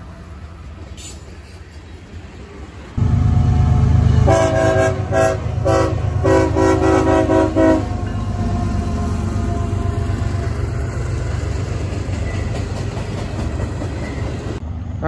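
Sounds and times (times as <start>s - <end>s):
locomotive engine rumble: 0.0s - 15.0s
train air horn blasts: 3.0s - 8.6s.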